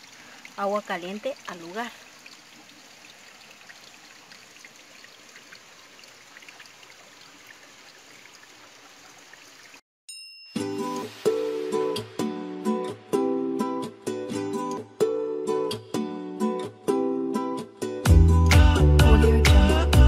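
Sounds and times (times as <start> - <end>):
water trickling between rocks: 0.0 - 9.8
plucked-string music: 10.6 - 20.0.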